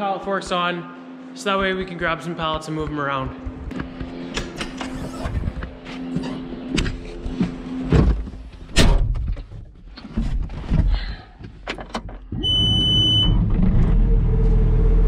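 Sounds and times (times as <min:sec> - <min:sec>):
knocks and clatter of climbing: 0:01.6 - 0:12.4.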